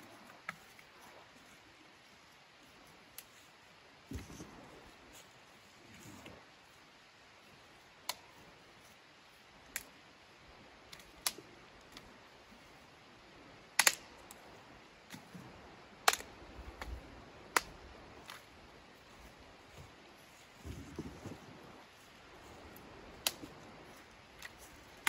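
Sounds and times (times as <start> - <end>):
dry sticks snapping: 8.0 - 8.4, 9.6 - 9.9, 10.9 - 12.1, 13.8 - 14.4, 16.0 - 18.5, 22.7 - 25.0.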